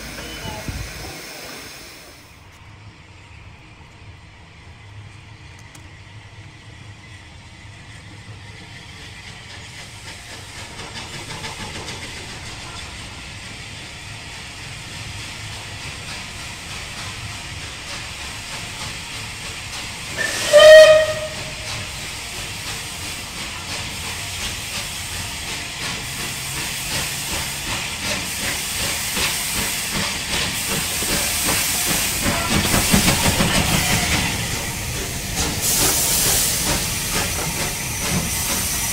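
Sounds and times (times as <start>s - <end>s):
steam locomotive hiss and running: 0.0s - 3.2s, 4.6s - 38.9s
steam whistle blast: 20.2s - 21.9s.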